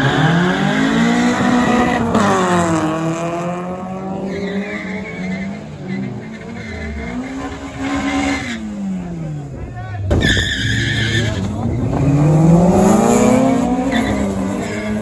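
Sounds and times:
car engines revving: 0.0 - 15.0
tyre squeal: 4.2 - 8.7, 10.2 - 11.6.

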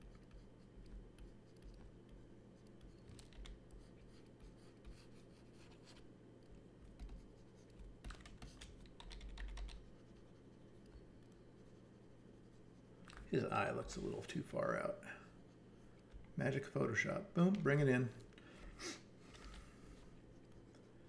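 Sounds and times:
low steady hum: 0.0 - 21.0
keyboard keys clicking: 3.0 - 3.6, 8.0 - 9.8.

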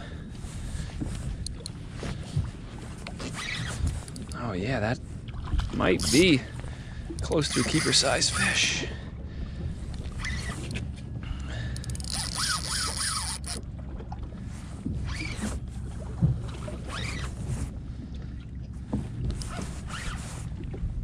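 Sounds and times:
wind and water noise: 0.0 - 21.0
reel drag zipping buzz: 3.0 - 4.4, 5.9 - 6.4, 7.2 - 8.6, 10.1 - 10.8, 11.8 - 13.6, 15.0 - 15.6, 16.8 - 17.4, 19.4 - 20.3
fishing reel cranking: 3.4 - 4.4, 5.9 - 6.4, 7.2 - 8.7, 10.2 - 10.8, 11.7 - 13.6.

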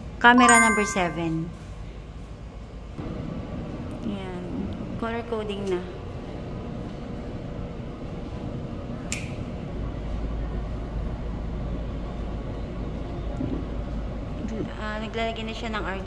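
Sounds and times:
steady background noise: 0.0 - 16.0.

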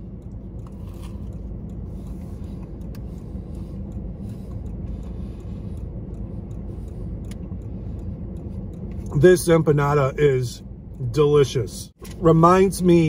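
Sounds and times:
faint chewing clicks: 0.0 - 9.2
car engine idling: 0.0 - 13.0.

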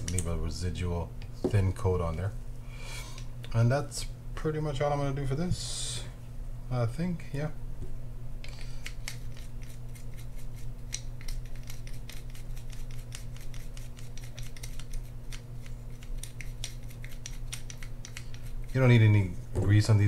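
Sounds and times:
toothbrush scrubbing metal: 8.8 - 19.3.

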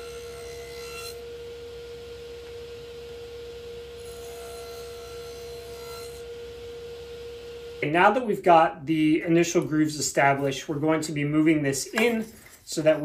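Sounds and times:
table saw running: 0.0 - 7.9.

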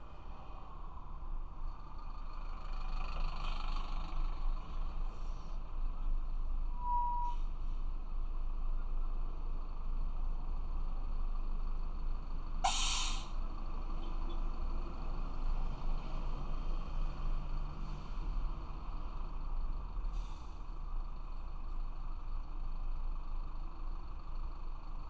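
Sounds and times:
low rumble of traffic: 0.0 - 25.0
bus air brakes hissing: 6.8 - 7.6, 12.6 - 13.4, 20.1 - 20.7.

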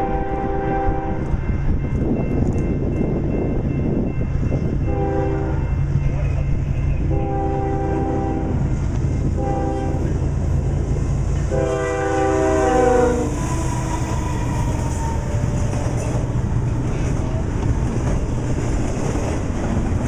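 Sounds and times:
locomotive air horn blasts: 0.0 - 1.4, 4.8 - 5.7, 7.0 - 10.2, 11.5 - 16.1
train cars rolling on rails: 0.0 - 20.0.

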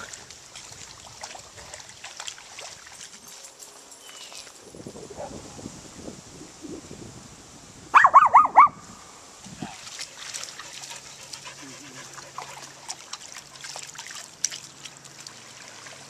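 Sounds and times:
dogs splashing in water: 0.0 - 4.6, 9.6 - 16.0.

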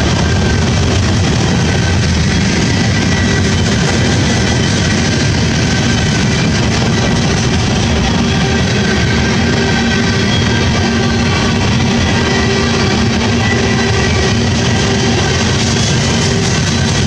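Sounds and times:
freight train wheels rumbling: 0.0 - 17.0.

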